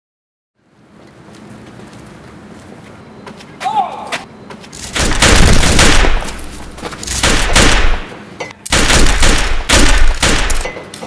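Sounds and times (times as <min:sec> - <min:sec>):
automatic gunfire bursts: 0:04.9 - 0:06.4, 0:07.1 - 0:08.1, 0:08.7 - 0:10.7.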